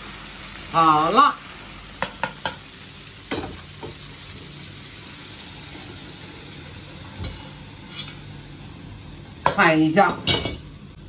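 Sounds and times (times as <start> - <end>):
gas burner rushing: 0.0 - 11.0
wok knocking against metal pot: 2.0 - 2.6.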